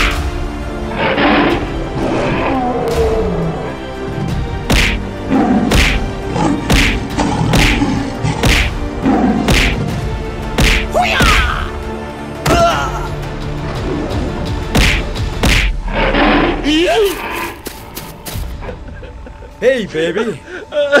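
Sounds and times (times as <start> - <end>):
dramatic background music: 0.0 - 21.0
heavy thuds and whacks: 4.6 - 5.0, 5.7 - 6.1, 6.7 - 7.8, 8.4 - 8.8, 9.4 - 10.0, 10.6 - 10.9, 14.7 - 15.8.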